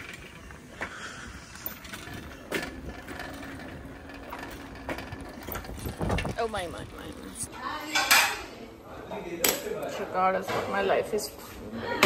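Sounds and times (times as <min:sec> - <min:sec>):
bicycle rattling: 0:00.0 - 0:07.5
bicycle tyre road noise: 0:00.0 - 0:07.5.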